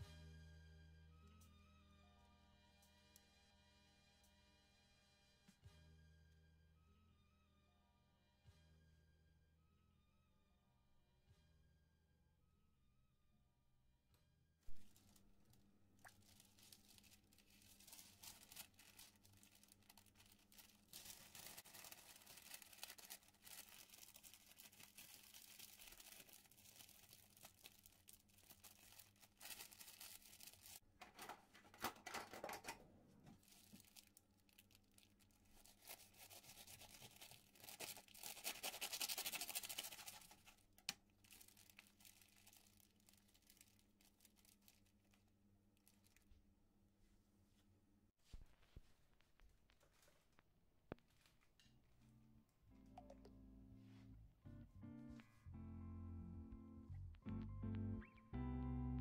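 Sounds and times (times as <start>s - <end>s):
baking paper rustling and crinkling: 14.8s - 46.3s, 48.2s - 51.6s.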